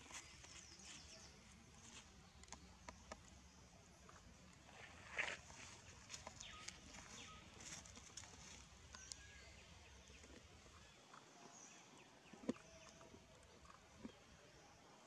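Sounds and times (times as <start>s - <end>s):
faint bird chirps: 4.1s - 14.6s.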